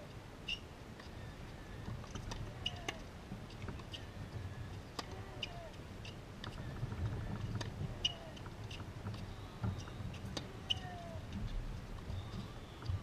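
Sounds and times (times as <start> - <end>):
wind rumble on microphone: 0.0 - 13.0
bird chirps: 0.4 - 1.4, 12.1 - 13.0.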